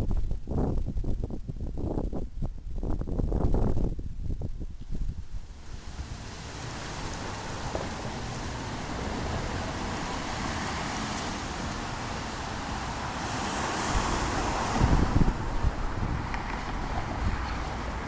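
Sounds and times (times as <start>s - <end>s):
wind rumbling on microphone: 0.0s - 18.0s
tyres hissing on road: 5.5s - 18.0s.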